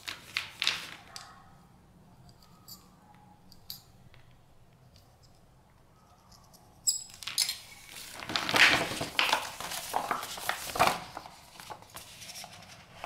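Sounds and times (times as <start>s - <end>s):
plastic sheet rustling and crinkling: 0.0s - 1.1s, 7.8s - 13.0s.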